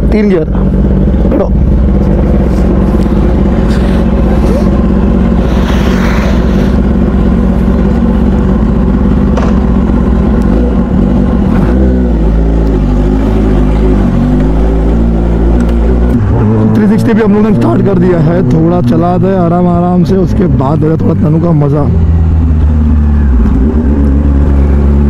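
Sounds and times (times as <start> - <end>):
motorcycle engine idling: 0.0 - 11.5
motorcycle pulling away: 0.6 - 25.0.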